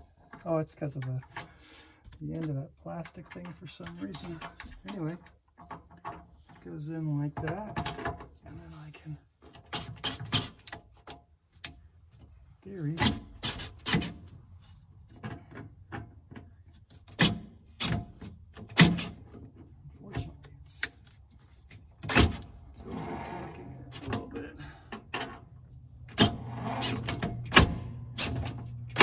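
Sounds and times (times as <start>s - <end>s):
sharp metal clicks and knocks: 0.3s - 6.7s.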